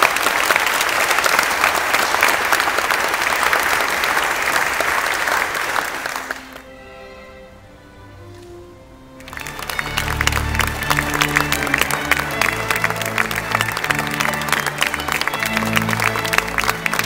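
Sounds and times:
congregation applauding: 0.0s - 6.7s, 9.2s - 17.0s
music with held notes: 6.4s - 17.0s.

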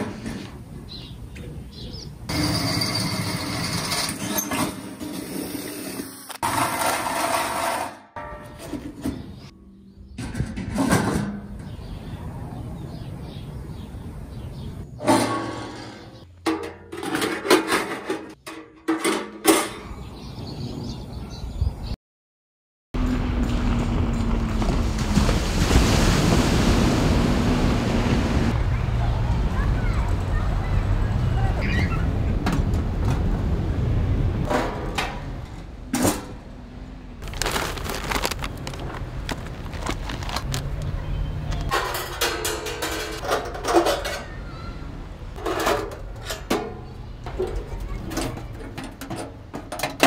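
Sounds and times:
metal lid and grate clanking: 6.4s - 9.5s, 10.1s - 11.8s, 15.0s - 19.9s, 41.6s - 44.8s, 45.4s - 50.0s
metal pans clinking: 15.0s - 19.8s, 41.6s - 44.4s.

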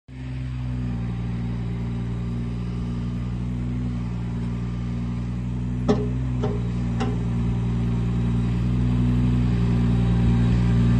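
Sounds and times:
diesel engine running: 0.1s - 10.9s
sharp metal clank: 5.9s - 7.3s.

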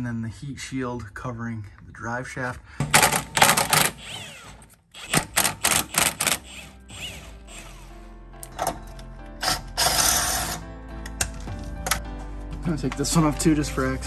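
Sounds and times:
impact wrench clicking: 3.0s - 6.7s
background music: 3.1s - 14.0s
wrench sharp clicks: 5.0s - 7.0s.

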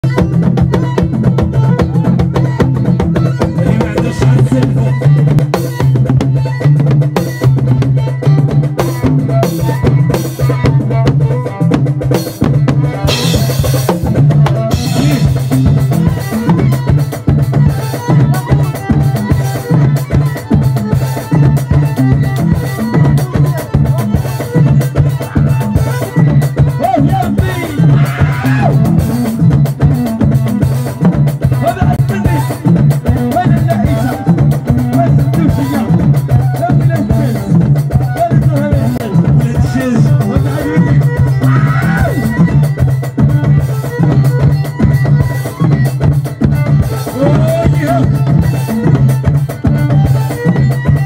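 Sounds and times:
bass line: 0.0s - 51.0s
fast drum kit groove: 0.0s - 51.0s.

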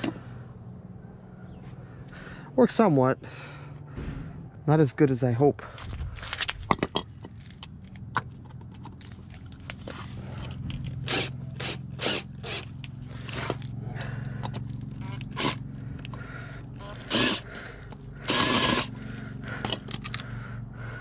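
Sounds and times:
cordless drill motor: 10.3s - 13.7s, 14.4s - 19.0s
drill bit scraping screw: 16.8s - 17.4s, 18.3s - 18.9s.

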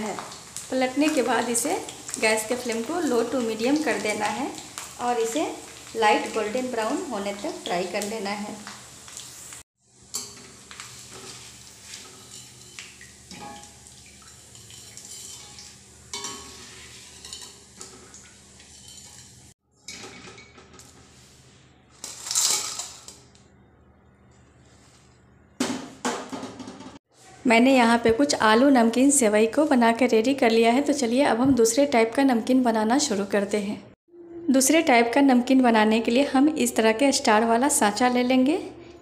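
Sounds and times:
metal utensils scraping a pan: 10.1s - 21.0s, 21.9s - 23.2s.

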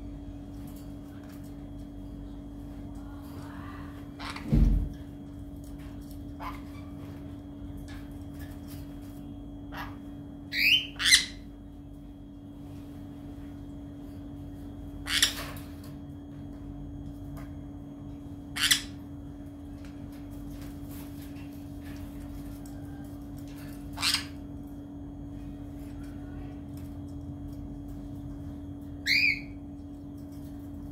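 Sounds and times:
parrot squawking: 9.7s - 11.4s, 18.5s - 19.0s, 24.0s - 24.4s, 29.0s - 29.6s.

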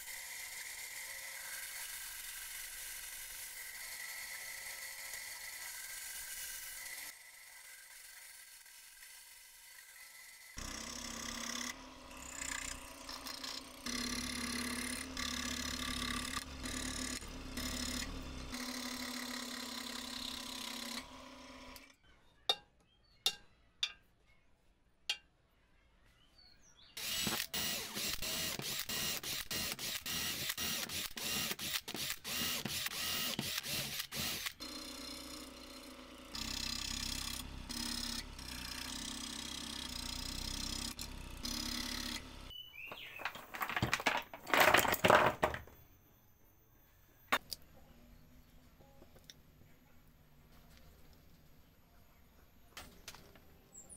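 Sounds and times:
bandsaw cutting wood: 0.0s - 21.9s, 27.0s - 42.5s
scroll saw cutting wood: 0.0s - 22.0s, 27.0s - 43.2s.

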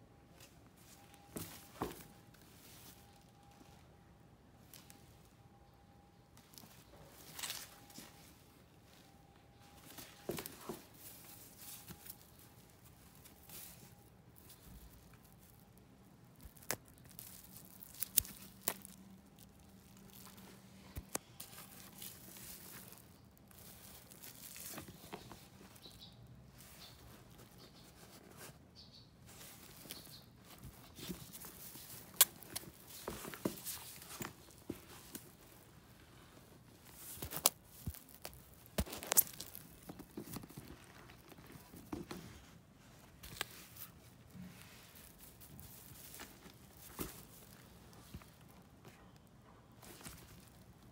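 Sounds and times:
leather and fabric rustling: 0.3s - 3.9s, 6.4s - 28.6s, 29.2s - 50.9s
handbag clicks and knocks: 30.6s - 35.4s.

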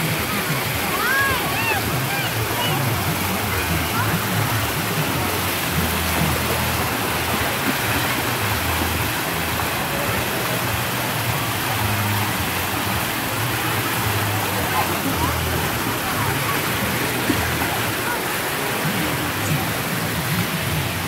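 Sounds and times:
faint distant voices: 0.0s - 21.0s
fountain jets spraying water: 0.0s - 21.0s.

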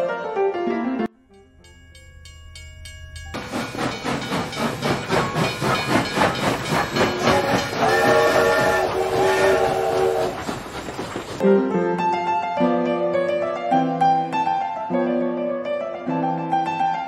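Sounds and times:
steam locomotive chuffing: 3.2s - 11.4s
steam hissing: 3.4s - 11.4s
locomotive whistle: 5.1s - 10.7s.

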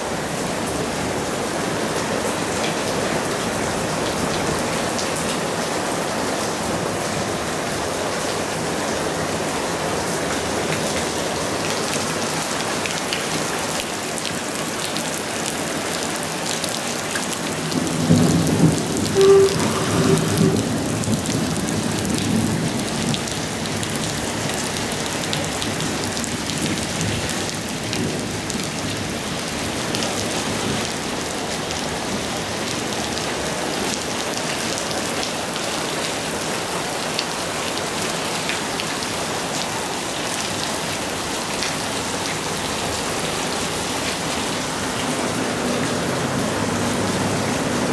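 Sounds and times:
rain falling on a roof: 0.0s - 47.9s
thunder rumbling: 17.6s - 23.1s.

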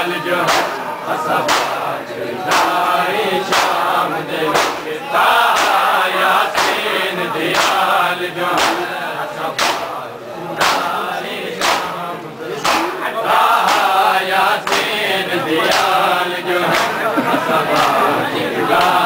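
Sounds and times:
crowd of men chanting: 0.0s - 19.0s
hands slapping on chests: 0.5s - 0.8s, 1.4s - 1.8s, 2.5s - 2.8s, 3.5s - 3.8s, 4.5s - 4.9s, 5.5s - 5.9s, 6.6s - 6.8s, 7.5s - 7.8s, 8.6s - 8.9s, 9.6s - 9.9s, 10.6s - 10.9s, 11.6s - 12.0s, 12.6s - 13.0s, 13.6s - 14.0s, 14.6s - 14.9s, 15.6s - 16.0s, 16.7s - 17.0s, 17.7s - 18.1s, 18.8s - 19.0s.

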